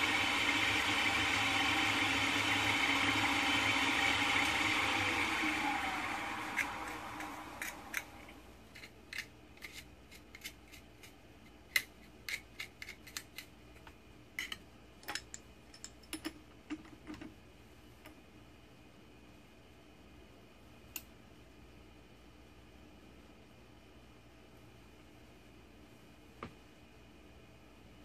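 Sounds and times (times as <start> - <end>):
milling machine spindle coasting down: 0.0 - 8.4.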